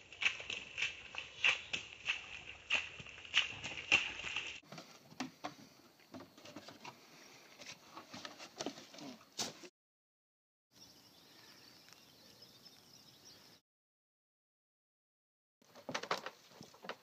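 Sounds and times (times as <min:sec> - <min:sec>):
footsteps squelching through mud: 0:00.0 - 0:04.7
people climbing over wooden pallets: 0:00.0 - 0:09.7, 0:15.7 - 0:17.0.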